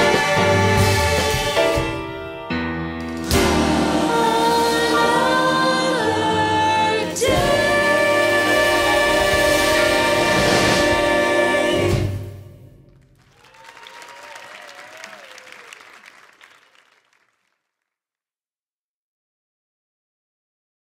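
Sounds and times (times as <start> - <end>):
a cappella choir singing: 0.0 - 1.9, 3.3 - 12.7
audience applause: 13.0 - 17.7.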